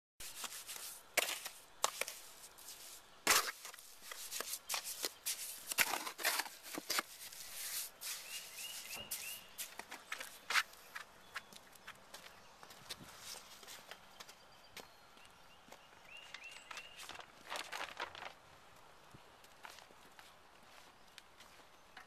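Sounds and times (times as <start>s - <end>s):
trowel scraping wet mortar: 0.2s - 9.8s.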